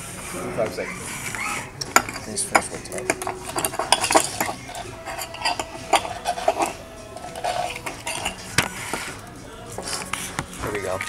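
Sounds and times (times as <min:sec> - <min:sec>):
fork clinking on plate: 0:01.8 - 0:08.8.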